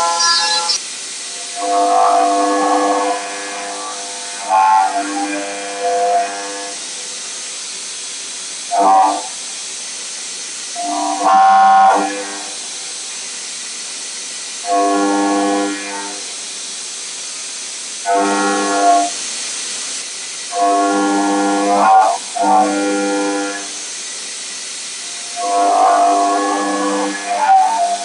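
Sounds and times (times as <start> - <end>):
milling cutter humming tone: 0.0 - 7.2, 8.7 - 9.4, 10.8 - 12.7, 18.1 - 19.2, 20.5 - 23.8, 24.5 - 28.0
coolant hiss: 0.0 - 28.0.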